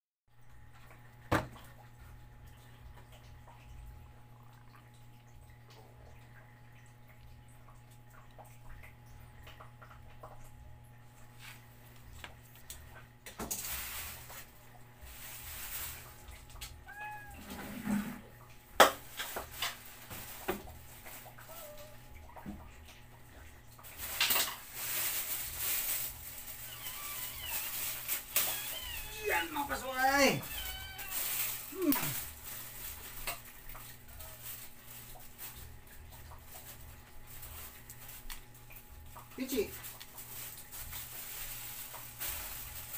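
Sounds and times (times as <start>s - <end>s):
plastic bag rustling: 13.4s - 17.7s, 19.0s - 22.1s, 23.8s - 38.7s, 39.4s - 42.9s
cat meowing: 16.8s - 17.6s, 21.3s - 22.1s, 26.6s - 32.2s.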